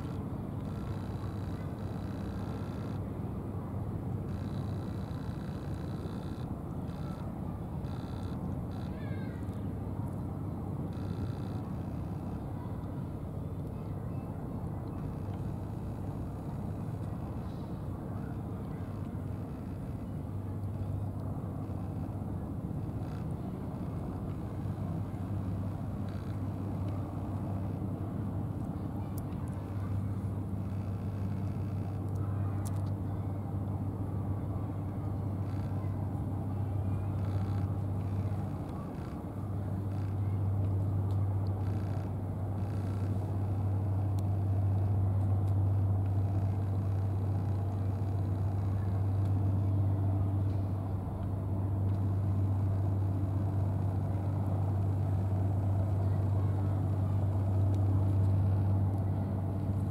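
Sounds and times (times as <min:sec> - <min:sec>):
low mechanical hum: 0:00.0 - 0:59.9
outdoor background noise: 0:00.0 - 0:59.9.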